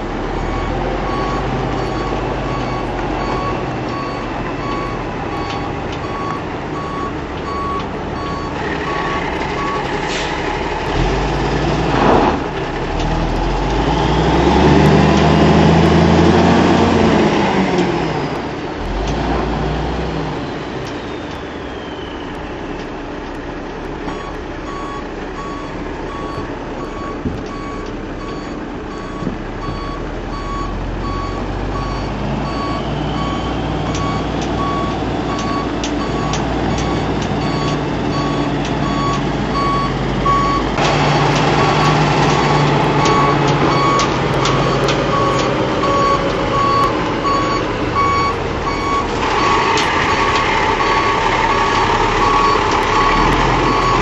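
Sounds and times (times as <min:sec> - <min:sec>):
truck backup alarm beeping: 0:00.0 - 0:11.6, 0:23.9 - 0:54.0
diesel engine running: 0:00.0 - 0:54.0.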